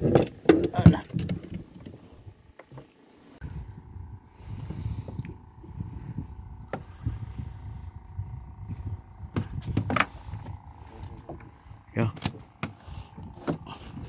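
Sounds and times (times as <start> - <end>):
wind buffeting microphone: 3.4 - 14.0.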